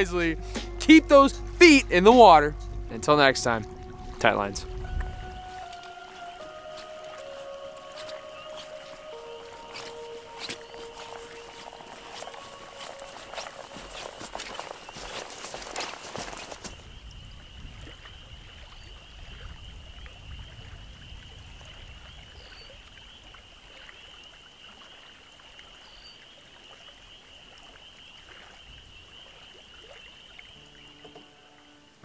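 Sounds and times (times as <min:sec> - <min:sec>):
high-pitched trilling chorus: 0:00.0 - 0:14.8
water rushing: 0:00.0 - 0:25.8
wind: 0:00.0 - 0:32.0
faint bird chirps: 0:16.8 - 0:31.9.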